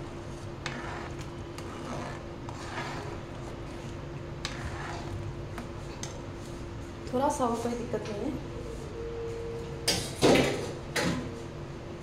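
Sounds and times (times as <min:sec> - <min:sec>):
pot boiling: 0:00.0 - 0:06.4
steady low hum: 0:00.0 - 0:12.0.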